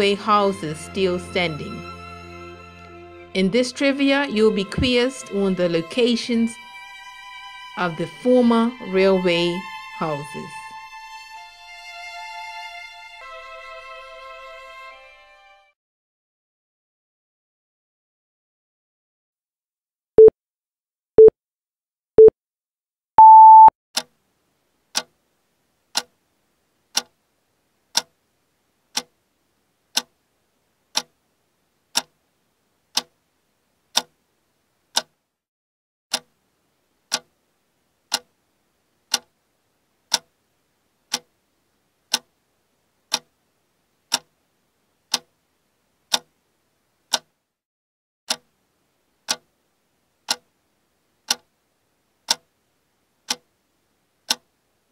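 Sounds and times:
longer higher beep: 23.2s - 23.7s
short beeps: 23.2s - 23.7s
clock ticking: 23.2s - 24.2s, 24.9s - 25.1s, 25.9s - 26.2s, 26.9s - 27.2s, 27.9s - 28.2s, 28.9s - 29.2s, 29.9s - 30.2s, 30.9s - 31.2s, 31.9s - 32.2s, 32.9s - 33.2s, 33.9s - 34.2s, 34.9s - 35.2s, 36.1s - 36.4s, 37.1s - 37.3s, 38.1s - 38.3s, 39.1s - 39.3s, 40.1s - 40.3s, 41.1s - 41.3s, 42.1s - 42.3s, 43.1s - 43.3s, 44.1s - 44.3s, 45.1s - 45.3s, 46.1s - 46.3s, 47.1s - 47.3s, 48.3s - 48.5s, 49.2s - 49.5s, 50.3s - 50.5s, 51.2s - 51.5s, 52.2s - 52.5s, 53.3s - 53.5s, 54.3s - 54.5s.

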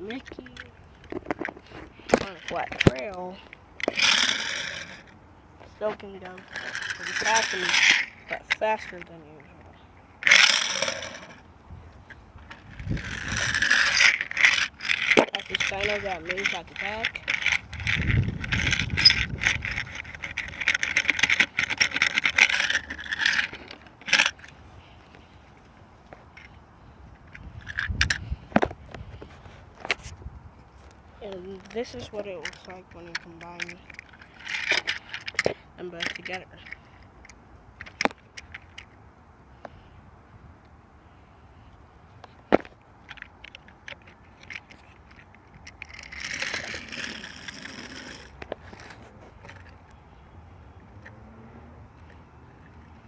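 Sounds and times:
toy train rattling on track: 2.1s - 5.1s, 6.2s - 9.0s, 10.2s - 11.4s, 12.5s - 24.5s, 31.5s - 37.0s, 43.1s - 49.8s.

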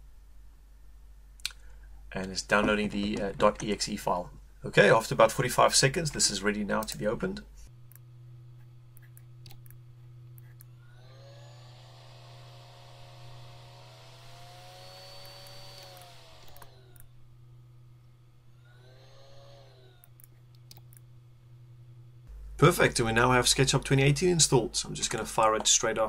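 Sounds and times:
low electrical hum: 0.0s - 26.0s
whirring machine: 7.8s - 22.0s.

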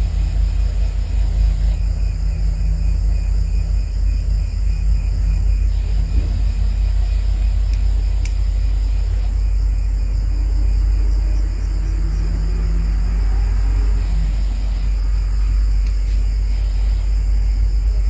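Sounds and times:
insects chirping: 0.0s - 18.0s
low background rumble: 0.0s - 18.0s.

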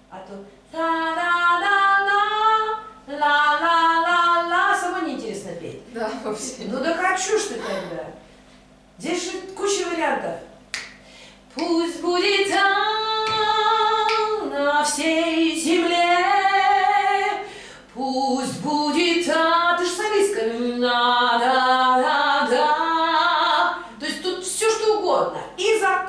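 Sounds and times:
woman singing unaccompanied: 0.7s - 5.4s, 11.5s - 24.6s.

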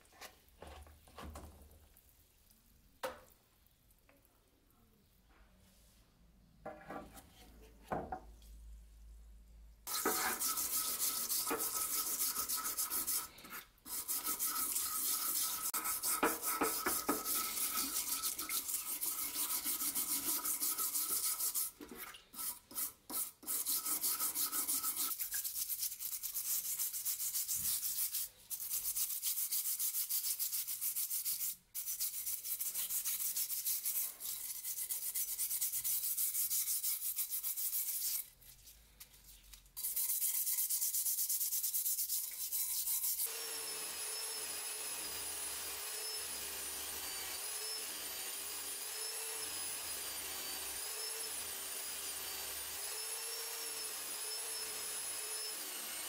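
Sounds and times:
blade scrubbed in liquid: 9.9s - 38.8s, 39.8s - 43.3s.

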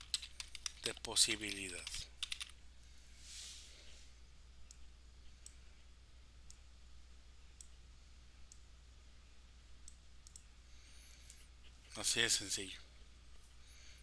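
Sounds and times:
low steady hum: 0.0s - 14.0s
computer mouse clicks: 9.8s - 10.5s.

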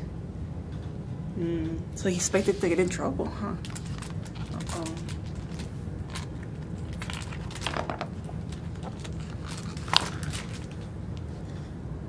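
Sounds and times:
steady low hum: 0.0s - 12.0s
book pages turning: 3.6s - 11.0s.

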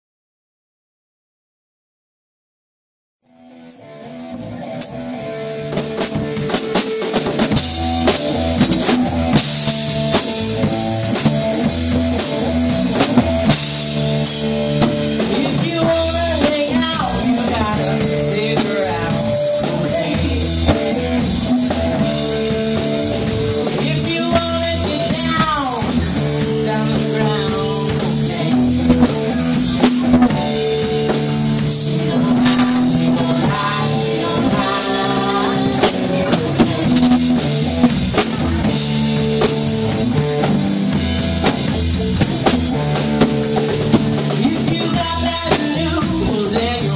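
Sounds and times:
live rock band playing: 3.3s - 46.9s.

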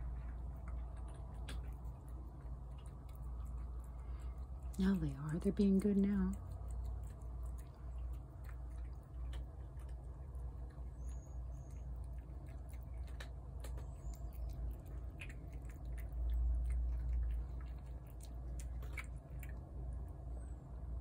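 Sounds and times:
cat chewing wet food: 0.0s - 20.3s.

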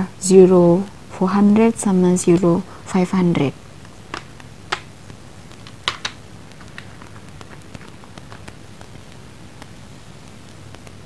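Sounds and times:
low steady hum: 0.0s - 11.0s
pencils clicking and tapping: 3.8s - 11.0s.

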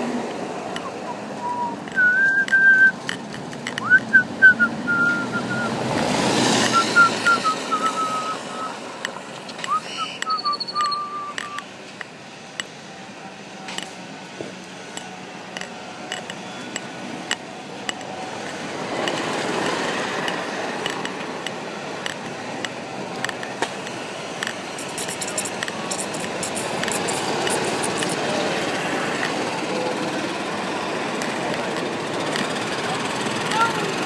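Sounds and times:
pendant clinking against device: 9.0s - 11.7s.

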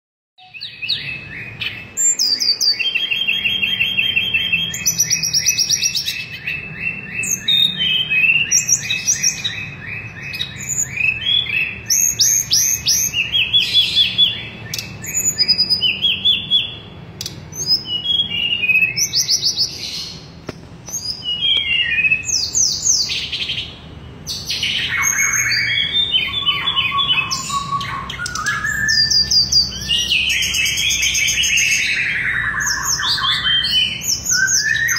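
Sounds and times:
bird singing trills and whistles: 0.4s - 34.9s.

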